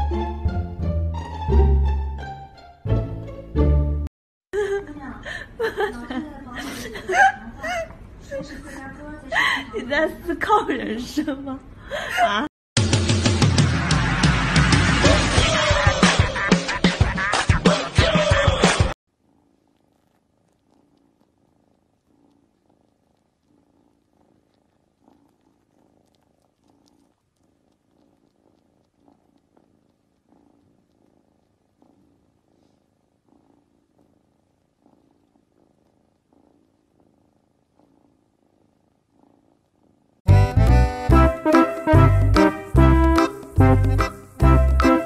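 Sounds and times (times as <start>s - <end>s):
kitten purring: 19.0s - 45.0s.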